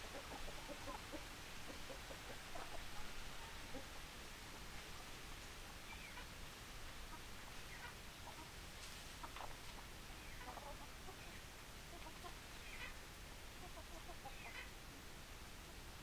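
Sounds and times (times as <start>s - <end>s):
chickens clucking: 0.0s - 5.2s, 5.9s - 6.3s, 6.9s - 14.8s.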